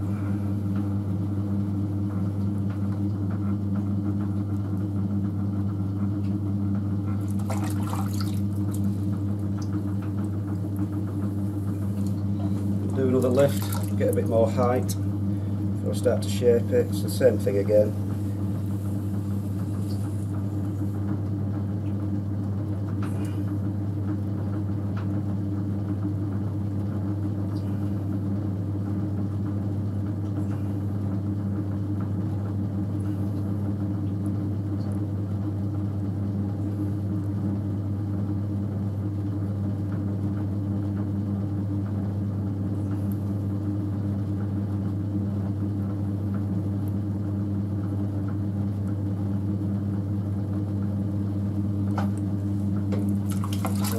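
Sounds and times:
potter's wheel motor hum: 0.0 - 53.9.

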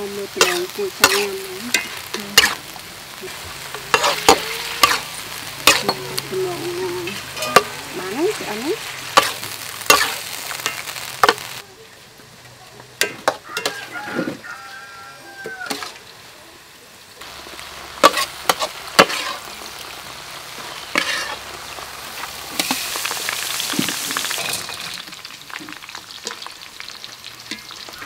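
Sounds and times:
meat sizzling: 0.0 - 28.0
spatula clanking in wok: 0.4 - 2.6, 3.7 - 7.8, 13.0 - 13.9.

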